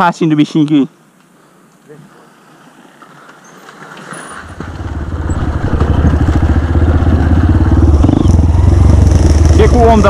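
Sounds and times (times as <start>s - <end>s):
dirt bike engine running: 3.8s - 10.0s.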